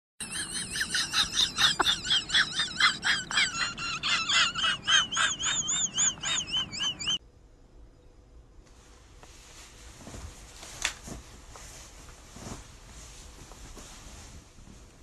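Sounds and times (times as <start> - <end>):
dog yelping: 1.7 - 7.2.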